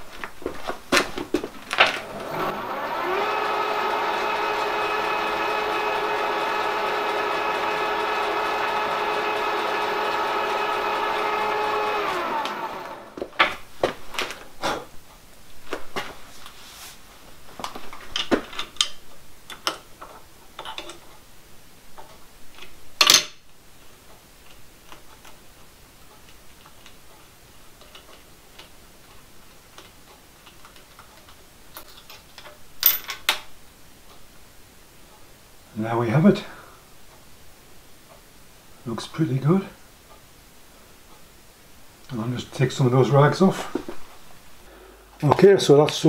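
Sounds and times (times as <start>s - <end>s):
milling machine running: 2.0s - 13.2s.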